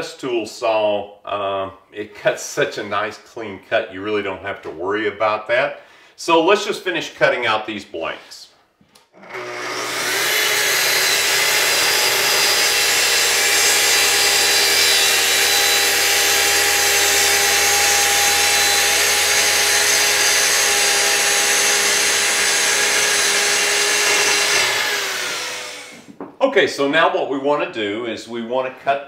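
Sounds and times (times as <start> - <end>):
circular saw cutting plywood: 9.2 - 26.1.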